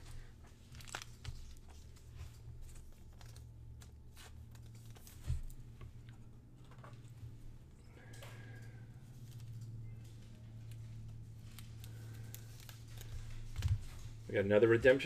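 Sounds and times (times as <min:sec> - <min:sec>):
plastic clicks and rustles: 0:00.0 - 0:07.2
steady low hum: 0:00.0 - 0:15.0.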